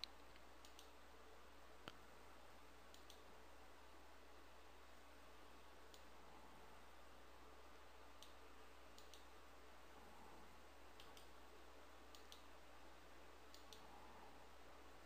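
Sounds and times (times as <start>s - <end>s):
computer mouse clicks: 0.0s - 1.0s, 2.9s - 3.3s, 5.9s - 6.2s, 8.2s - 9.3s, 10.9s - 11.4s, 12.1s - 12.5s, 13.5s - 14.0s
low steady hum: 0.0s - 15.0s.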